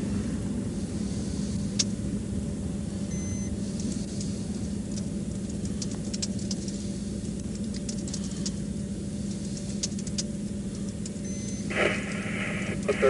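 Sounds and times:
electronic beep: 0:03.1 - 0:03.5, 0:11.2 - 0:11.7
light clicks and ticks: 0:04.9 - 0:11.3.

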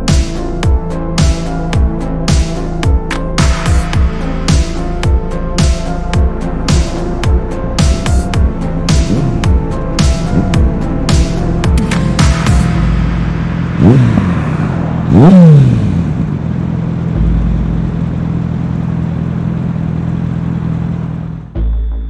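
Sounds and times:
motorcycle engine revving: 0:05.6 - 0:21.6.

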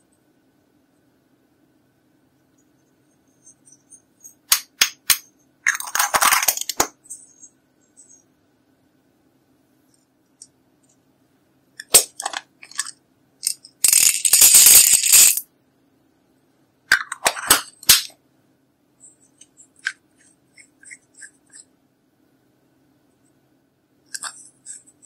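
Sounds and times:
beads rattling onto glitter: 0:13.4 - 0:15.4.

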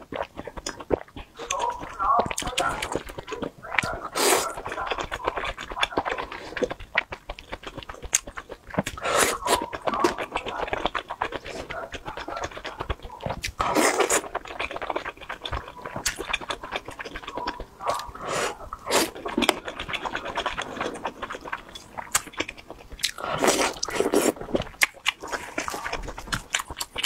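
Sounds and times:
wet chewing and mouth clicks: 0:00.0 - 0:27.0.

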